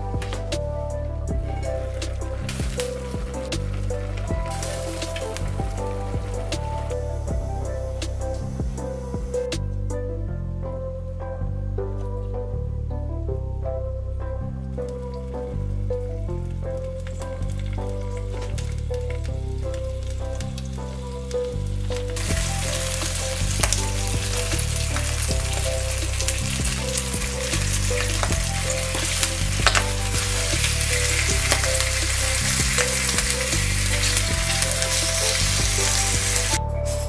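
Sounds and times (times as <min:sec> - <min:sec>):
pork sizzling in a pan: 0:01.8 - 0:07.0, 0:20.6 - 0:36.6.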